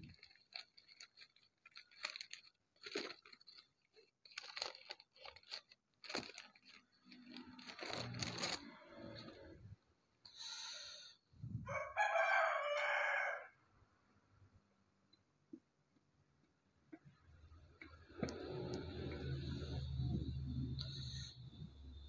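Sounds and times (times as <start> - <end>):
paper wrapping rustling: 0.0 - 9.5.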